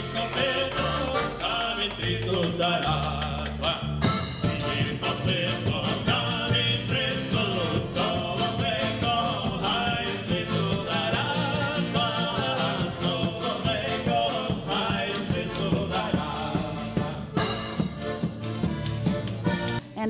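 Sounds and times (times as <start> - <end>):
accordion melody: 0.0 - 2.9, 4.0 - 20.0
man singing: 0.0 - 17.7
drum and cymbal beat: 4.0 - 19.9.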